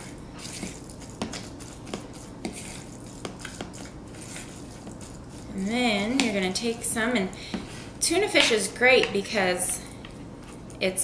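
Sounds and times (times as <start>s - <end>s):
wet stirring in a bowl: 0.0s - 9.4s
utensil tapping bowl: 0.6s - 3.9s, 4.7s - 6.7s.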